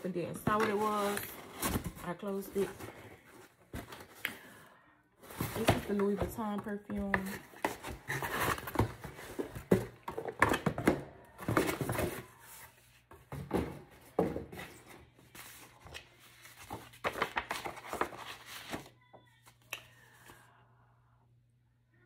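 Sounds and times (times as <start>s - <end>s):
cardboard box handled: 5.2s - 12.6s
paper rustling: 14.5s - 19.7s.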